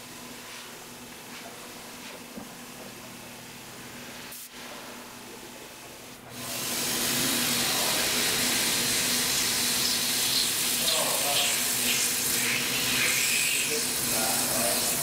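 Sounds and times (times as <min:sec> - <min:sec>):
loud steady cutting hiss: 0:06.3 - 0:15.0.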